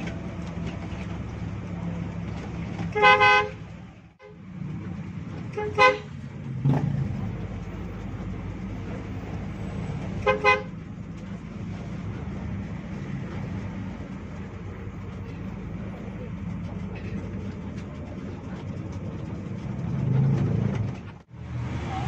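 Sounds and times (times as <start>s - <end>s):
bus engine drone: 0.0s - 22.0s
vehicle horn tooting: 2.9s - 3.6s, 5.5s - 6.2s, 10.2s - 10.7s.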